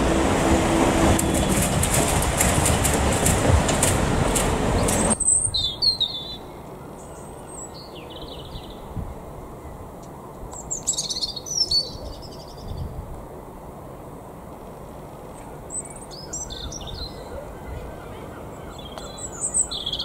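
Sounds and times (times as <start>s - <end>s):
train passing with rushing rumble: 0.0s - 7.1s
small birds chirping: 10.6s - 12.9s, 15.6s - 20.0s.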